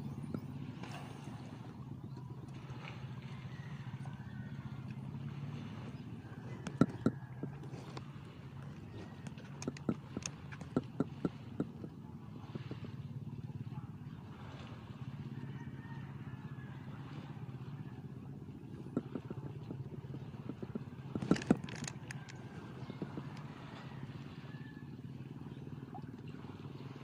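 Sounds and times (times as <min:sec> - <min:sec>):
low engine drone: 0:00.0 - 0:27.0
sharp knocks and clicks: 0:06.6 - 0:12.0, 0:18.8 - 0:23.5.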